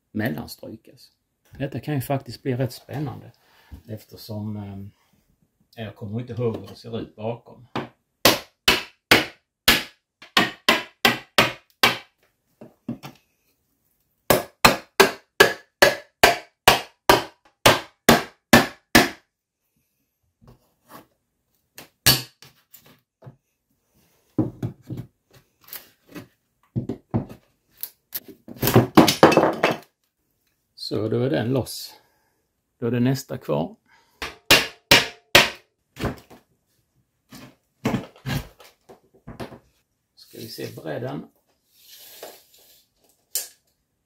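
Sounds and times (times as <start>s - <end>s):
hammer striking plastic wedge: 7.8s - 12.1s, 14.3s - 19.2s, 34.2s - 35.6s.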